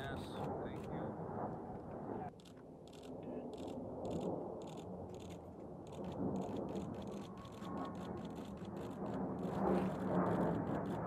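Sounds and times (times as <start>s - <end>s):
distant jet engine rumble: 0.0s - 11.0s
faint rapid crackle: 2.2s - 11.0s.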